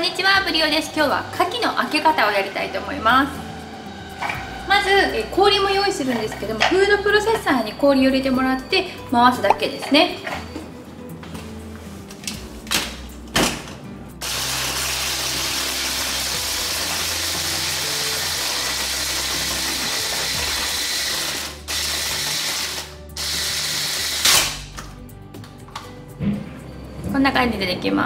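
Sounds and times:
food processor crushing ice: 0:14.2 - 0:24.6.

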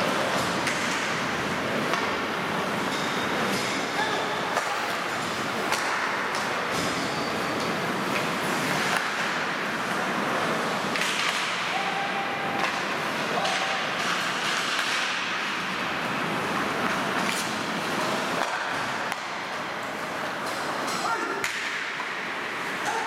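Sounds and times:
hockey sticks and puck clacking: 0:00.0 - 0:11.8, 0:12.5 - 0:23.0
skate blades scraping ice: 0:16.2 - 0:18.6.

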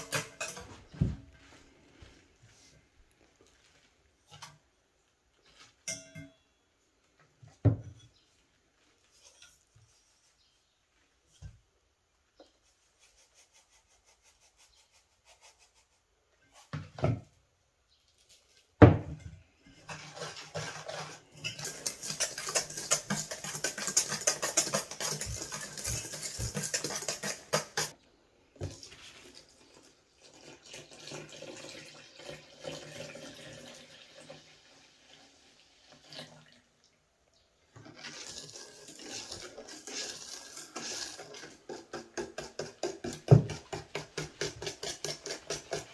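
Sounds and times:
wire whisk clattering in bowl: 0:21.4 - 0:27.9
milk pouring into bowl: 0:28.7 - 0:36.7, 0:37.8 - 0:42.1.

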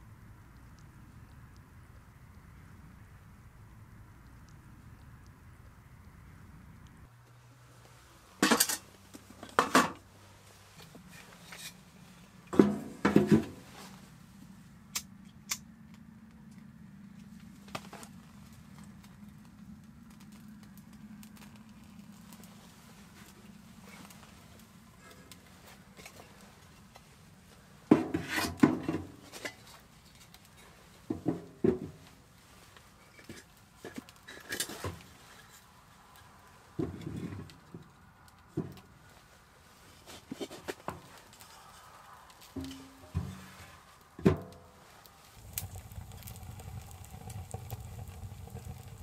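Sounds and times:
firewood knocking against metal stove: 0:12.6 - 0:13.6, 0:42.6 - 0:43.5
firewood knocking on steel stove: 0:42.6 - 0:43.5.

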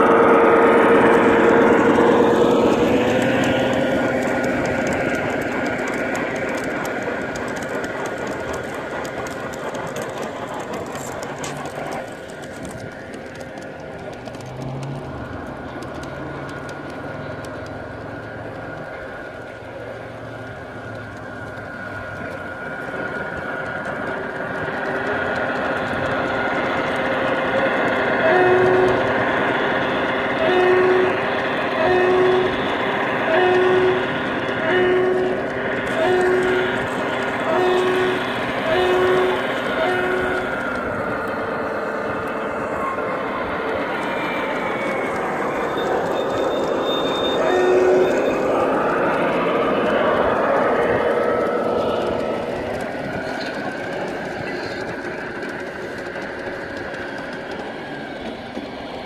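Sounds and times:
two-tone locomotive horn: 0:00.0 - 0:06.6, 0:26.5 - 0:41.0, 0:41.8 - 0:53.3
model train wheels clicking over rail joints: 0:00.0 - 0:59.0.

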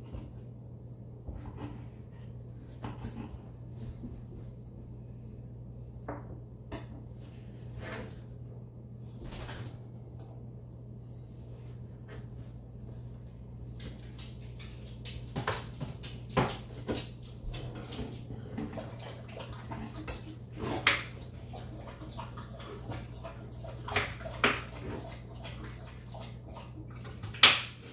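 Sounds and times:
steady low hum: 0:00.0 - 0:27.9.

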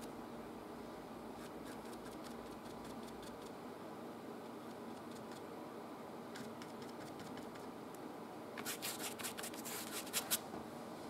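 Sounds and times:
paintbrush scratchy clicks: 0:06.4 - 0:07.7.

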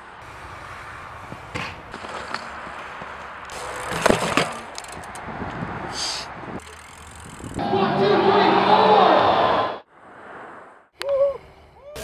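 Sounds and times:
bike crashing on dirt: 0:01.4 - 0:05.1.

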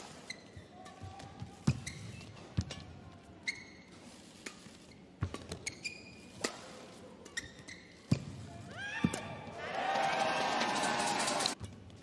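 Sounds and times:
shoes squeaking on court: 0:00.0 - 0:08.4
racket hitting shuttlecock: 0:06.3 - 0:07.5.

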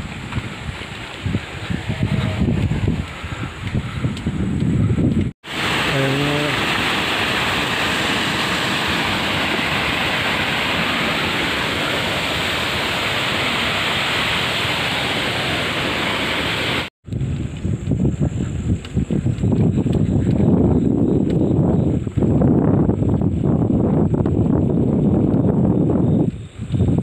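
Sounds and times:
stream water flowing: 0:05.4 - 0:16.9.

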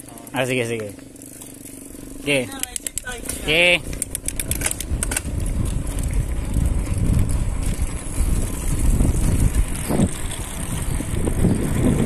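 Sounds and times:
faint riding noise: 0:00.0 - 0:12.0
wind buffeting microphone: 0:03.0 - 0:12.0.

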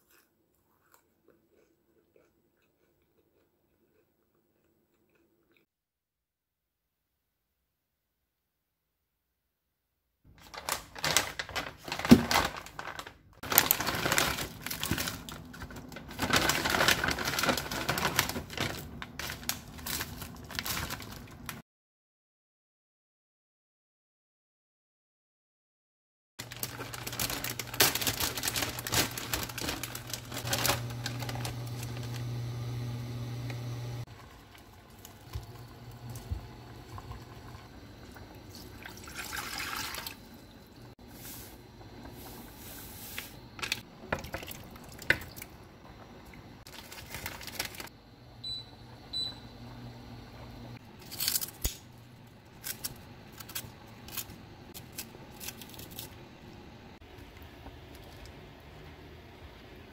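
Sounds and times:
noodles rustling into a pot: 0:10.3 - 0:21.6, 0:26.4 - 0:40.3, 0:41.0 - 0:45.5, 0:46.6 - 0:48.0
low steady hum: 0:26.5 - 0:59.9
sauce pouring into water: 0:34.2 - 0:40.8.

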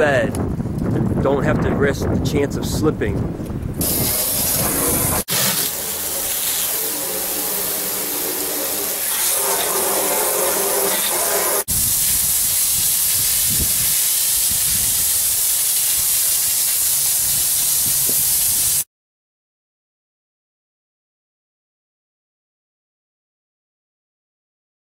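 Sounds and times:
hose water spraying: 0:03.8 - 0:18.9.

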